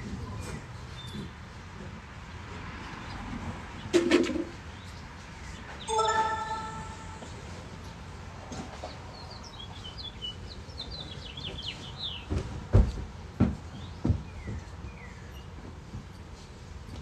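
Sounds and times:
songbird chirping: 0:05.8 - 0:07.5.

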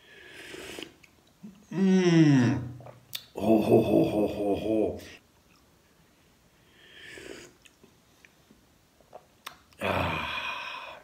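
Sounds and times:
man sipping hot drink: 0:00.2 - 0:01.7, 0:06.8 - 0:07.8.

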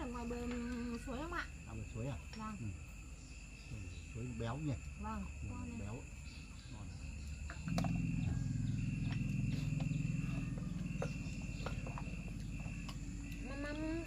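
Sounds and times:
crickets trilling: 0:00.0 - 0:14.0
low hum: 0:07.2 - 0:14.0.

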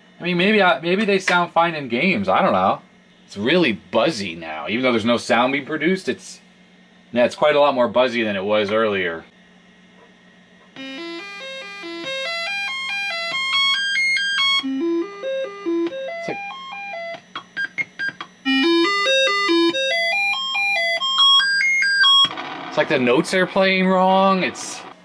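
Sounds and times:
stepped electronic notes: 0:10.8 - 0:25.0
steady low buzz: 0:22.2 - 0:25.0.

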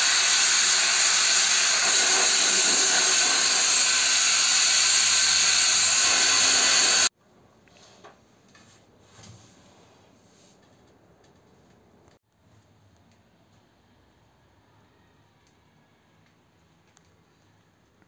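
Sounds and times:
paint spray gun hissing: 0:00.0 - 0:07.1.

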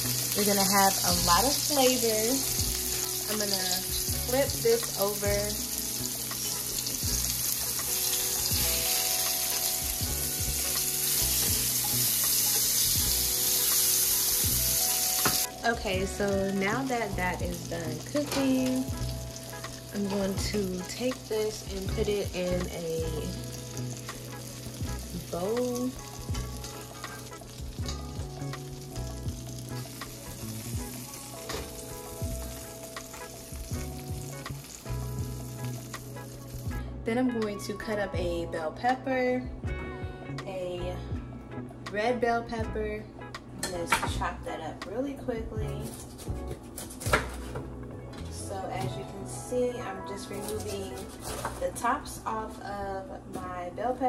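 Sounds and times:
fish fillets sizzling: 0:00.0 - 0:36.8.

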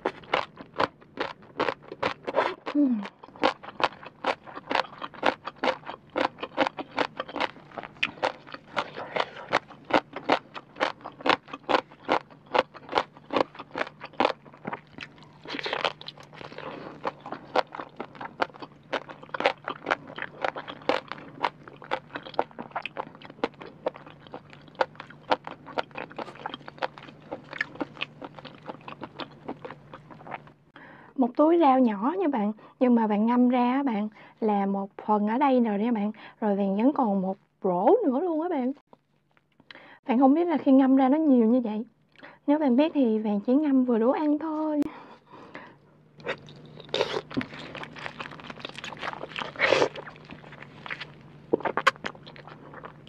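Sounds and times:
crisp eating crunches: 0:00.0 - 0:30.5, 0:46.2 - 0:53.0.

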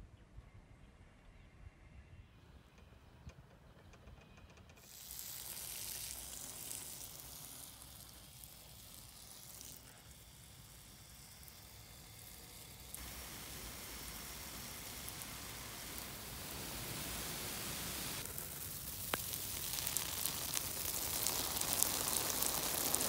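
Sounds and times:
hose water spraying on soil: 0:04.8 - 0:23.0.

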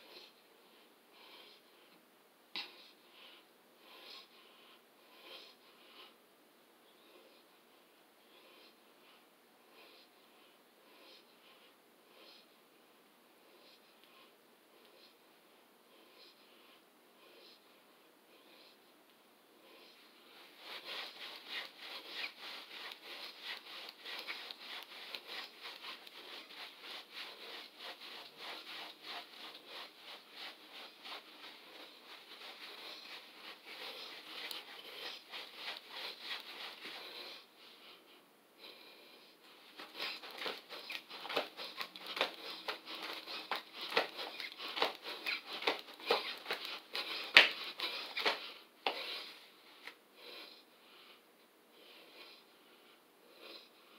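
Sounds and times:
rhythmic exercise noise: 0:20.2 - 0:37.5, 0:39.6 - 0:49.3.

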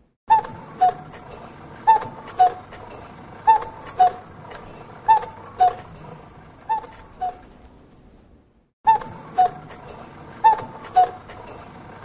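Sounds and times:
cuckoo clock calling: 0:00.3 - 0:07.5, 0:08.9 - 0:11.7.

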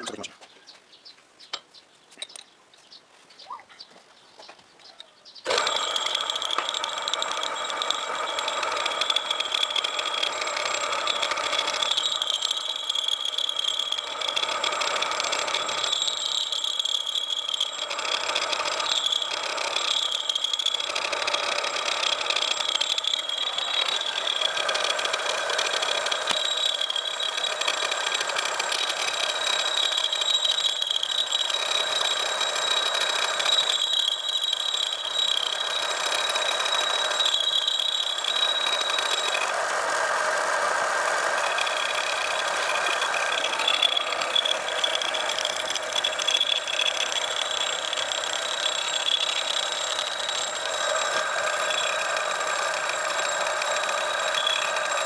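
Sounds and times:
lathe machining whine: 0:05.5 - 0:55.0.

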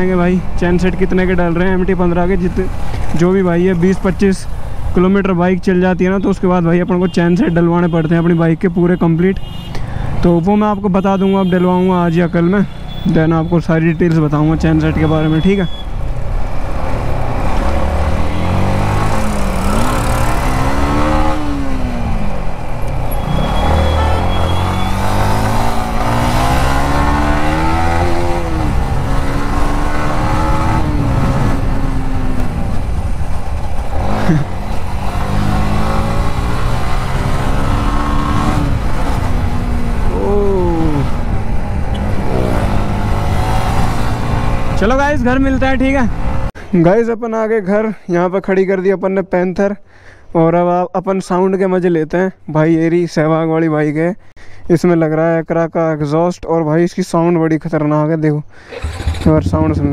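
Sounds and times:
motorcycle engine revving: 0:16.2 - 0:46.5, 0:58.7 - 0:59.9
motorcycle engine running: 0:58.7 - 0:59.9
low rushing noise: 0:58.8 - 0:59.9.

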